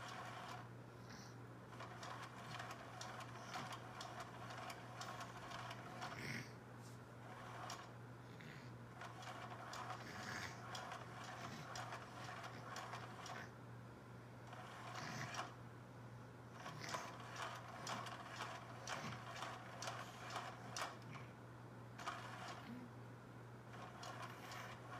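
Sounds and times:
irregular clicks and ticks: 1.7 - 6.2, 7.3 - 7.9, 9.0 - 13.5, 16.6 - 21.0, 22.0 - 22.6, 23.8 - 24.9
toy motor and gears whirring: 7.2 - 7.9, 9.0 - 13.5, 14.5 - 15.6, 16.6 - 21.0, 22.0 - 22.8, 23.7 - 24.9.

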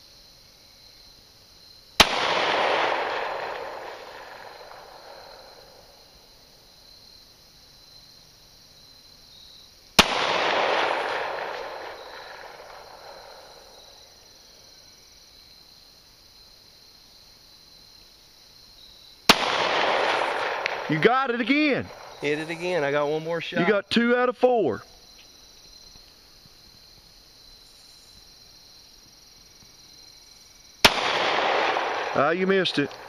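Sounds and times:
pistol shots echoing: 2.0 - 5.7, 10.0 - 13.7, 19.3 - 22.8, 30.8 - 33.0.

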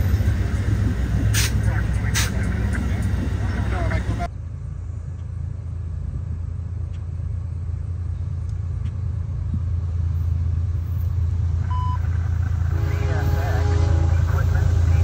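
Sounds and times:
low engine rumble: 0.0 - 15.0
short beep: 11.7 - 12.0.

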